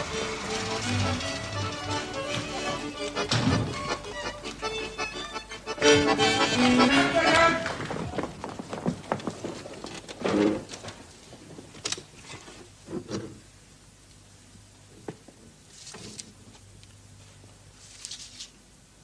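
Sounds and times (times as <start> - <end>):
knocks and shuffles: 0.0 - 4.7, 5.9 - 12.8.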